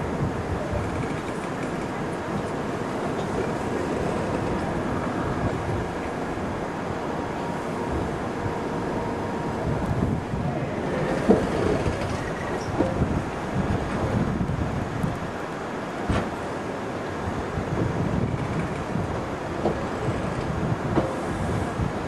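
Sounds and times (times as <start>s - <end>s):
train rumbling past: 0.0s - 22.0s.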